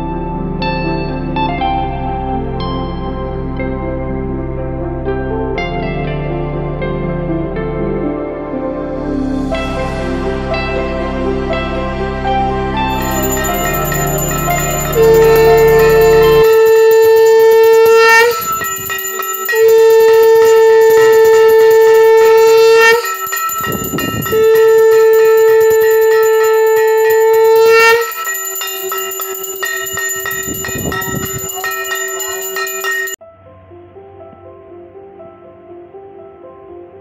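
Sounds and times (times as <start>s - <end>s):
bell ringing: 12.9s - 33.2s
conch shell blasts: 12.9s - 33.2s.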